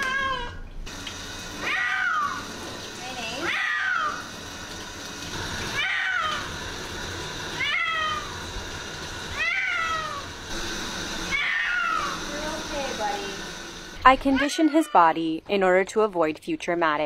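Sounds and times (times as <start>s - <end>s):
cat meowing: 0.0s - 0.6s, 1.6s - 2.4s, 3.4s - 4.2s, 5.8s - 6.5s, 7.6s - 8.4s, 9.3s - 10.3s, 11.3s - 12.2s
steady hiss: 8.2s - 14.2s.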